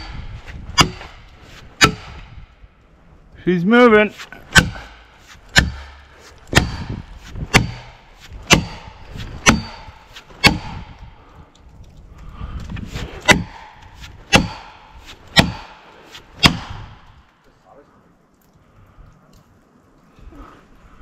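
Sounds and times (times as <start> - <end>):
axe hammering plastic wedge: 6.5 - 10.8, 15.4 - 15.8.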